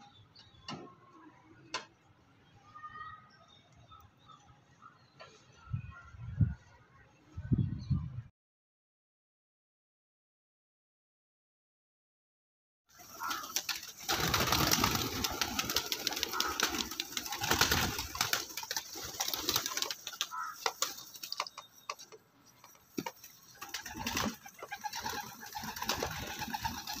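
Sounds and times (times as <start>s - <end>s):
pigeons cooing: 13.0s - 22.0s, 22.6s - 27.0s
wings flapping: 13.0s - 27.0s.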